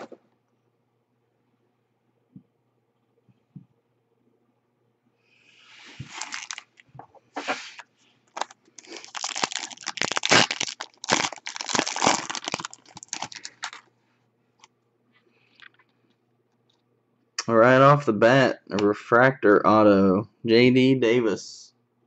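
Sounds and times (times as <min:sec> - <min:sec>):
foil wrapper tearing and crinkling: 0:06.1 - 0:06.8, 0:08.3 - 0:13.9.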